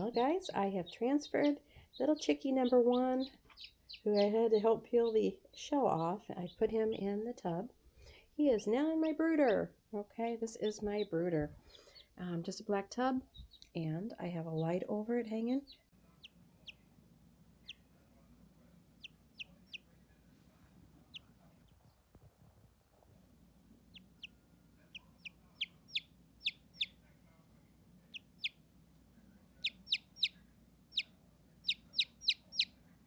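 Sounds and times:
chicks peeping: 0:00.0 - 0:05.2, 0:13.3 - 0:13.6, 0:15.7 - 0:22.0, 0:23.1 - 0:33.0.

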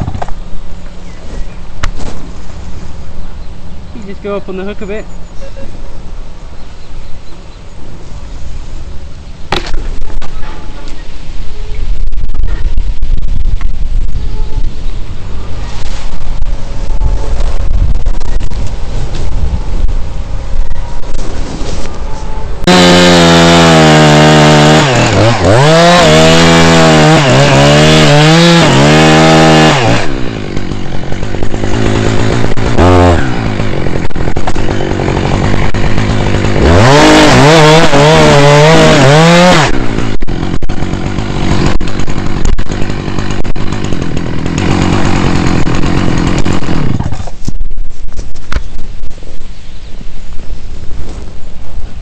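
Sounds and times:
chainsaw idling: 0:22.6 - 0:47.4
chainsaw cutting wood: 0:22.6 - 0:47.6.

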